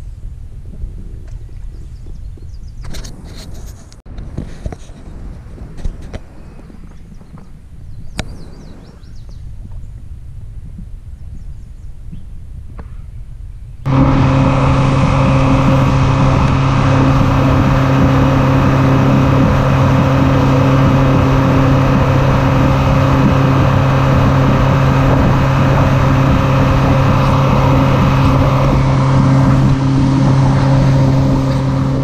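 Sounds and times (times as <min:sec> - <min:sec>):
boat wake rushing: 0:13.9 - 0:32.0
outboard motor droning: 0:13.9 - 0:32.0.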